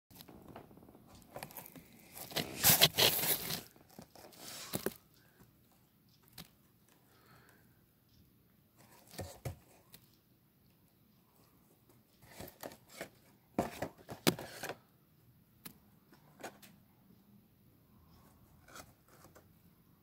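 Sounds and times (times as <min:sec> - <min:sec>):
packaging scraping and crinkling: 0:01.1 - 0:05.0.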